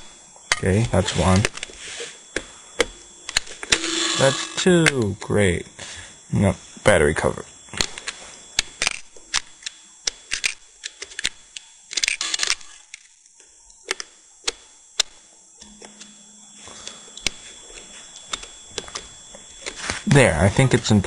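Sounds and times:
fingers handling batteries and plastic: 0:07.7 - 0:13.2.

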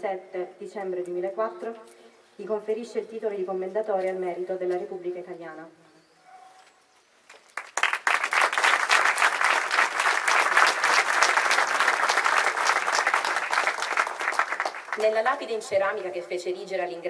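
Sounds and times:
crowd applauding: 0:07.6 - 0:15.2.

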